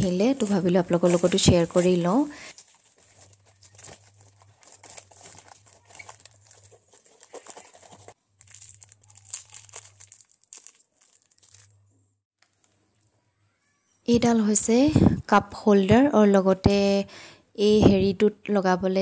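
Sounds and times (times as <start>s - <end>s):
cardboard box ripping and crinkling: 2.5s - 11.7s.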